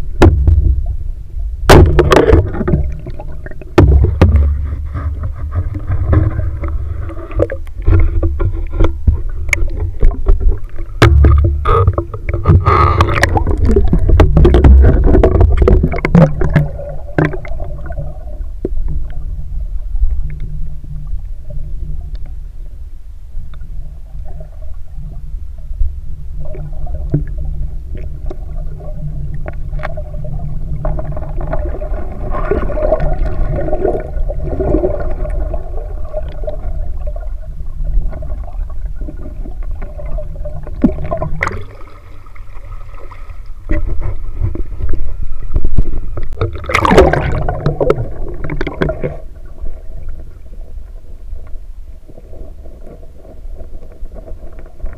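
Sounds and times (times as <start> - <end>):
underwater rumble of moving water: 0.0 - 54.9
clicks and gurgling: 1.7 - 19.2, 38.0 - 41.9, 43.7 - 50.3.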